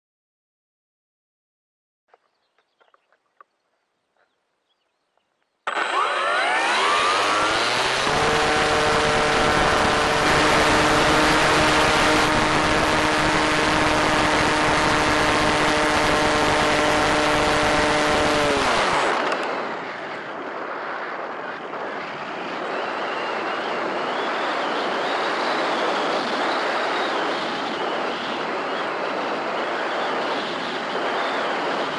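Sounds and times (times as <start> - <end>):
electric motor whine: 5.7 - 19.5
wind rushing past: 5.7 - 31.9.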